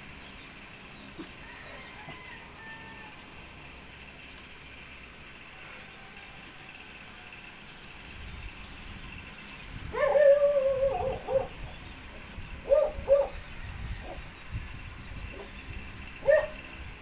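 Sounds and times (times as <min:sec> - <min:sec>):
animal making high whining calls: 0:09.9 - 0:11.6.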